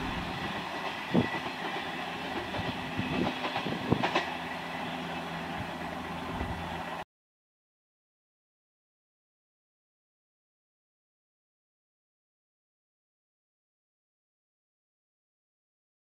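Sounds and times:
train wheel and rail rumble: 0:00.0 - 0:07.0
wheels clacking over rail joints: 0:00.0 - 0:07.0.

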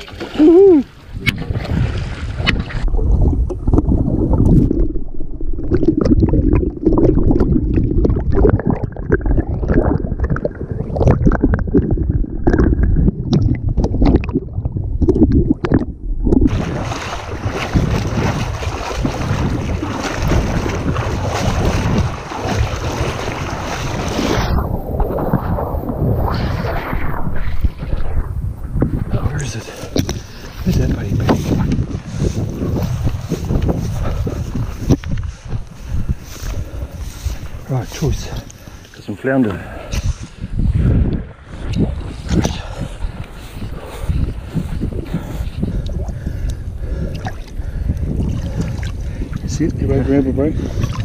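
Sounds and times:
water splashing around wading legs: 0:00.0 - 0:28.1, 0:41.6 - 0:49.5, 0:50.7 - 0:51.0
underwater bubbling: 0:00.0 - 0:49.6, 0:50.6 - 0:51.0
muffled underwater sloshing: 0:00.0 - 0:51.0.

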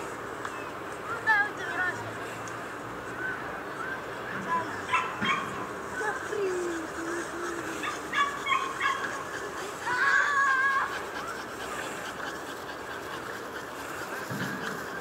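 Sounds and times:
dog yipping: 0:04.8 - 0:06.4, 0:07.5 - 0:11.5.

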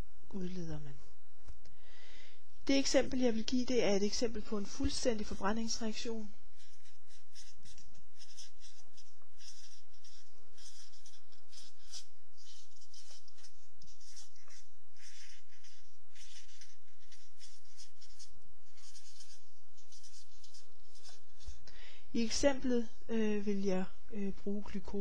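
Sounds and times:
marker pen scratching: 0:04.2 - 0:21.6.

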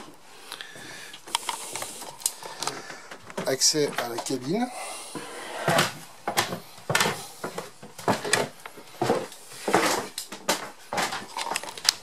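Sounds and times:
footsteps on wooden steps: 0:02.8 - 0:11.3.

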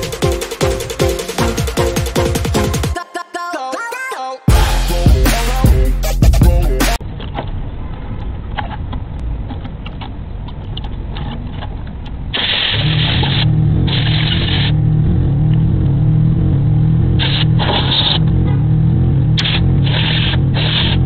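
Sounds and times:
engine parts clicking and knocking: 0:07.0 - 0:16.2.

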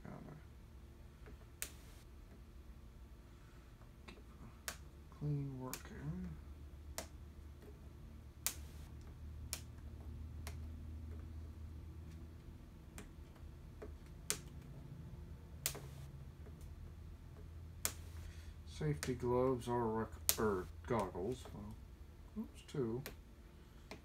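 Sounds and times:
steady low hum: 0:00.0 - 0:24.0
sharp clicks and light taps: 0:06.9 - 0:07.8, 0:08.4 - 0:11.3, 0:12.0 - 0:14.8, 0:15.6 - 0:19.5, 0:20.2 - 0:21.8, 0:22.7 - 0:24.0.

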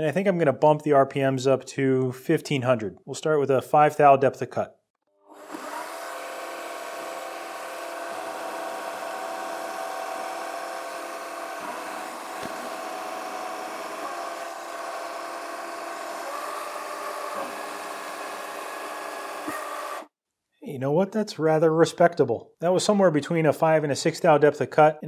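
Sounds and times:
lathe whining: 0:05.3 - 0:20.1.

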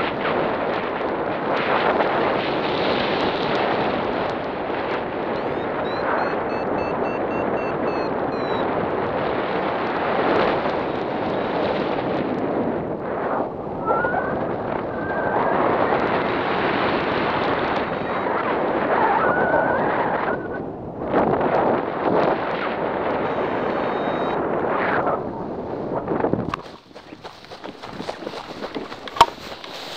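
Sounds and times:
wind buffeting microphone: 0:00.0 - 0:29.9
faint high beeping tones: 0:05.4 - 0:08.6.

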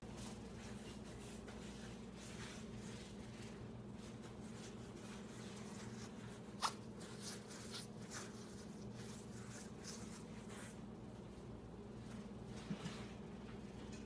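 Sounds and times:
soft brushing rustles: 0:00.0 - 0:13.8
steady low hum: 0:00.0 - 0:14.0.

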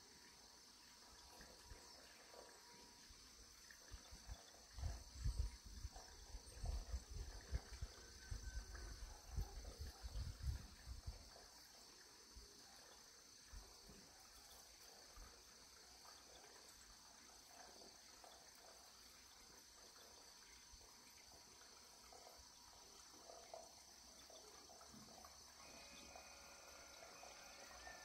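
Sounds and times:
steady high-pitched hiss: 0:00.0 - 0:28.0.

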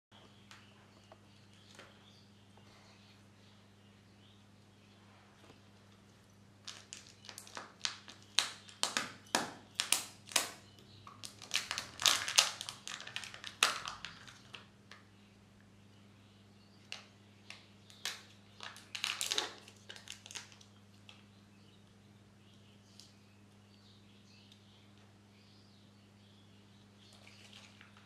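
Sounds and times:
foil wrapper crinkling: 0:06.6 - 0:15.0, 0:18.0 - 0:21.2.

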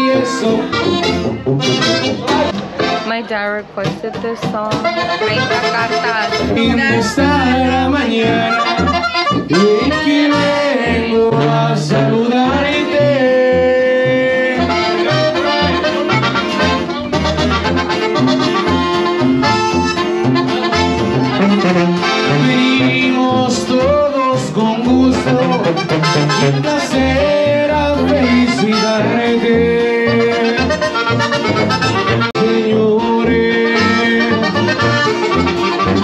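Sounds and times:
man singing into microphone: 0:00.0 - 0:01.0, 0:06.4 - 0:16.0, 0:22.2 - 0:30.9, 0:32.4 - 0:35.1
acoustic guitar: 0:00.0 - 0:36.0
band with bass line: 0:00.0 - 0:36.0.

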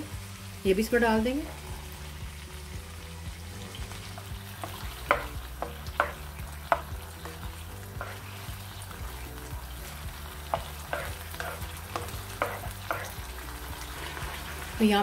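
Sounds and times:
chicken sizzling in a wok: 0:00.0 - 0:15.0
spatula stirring: 0:04.0 - 0:14.8
spatula clacking against pan: 0:04.6 - 0:08.5, 0:10.3 - 0:13.4.

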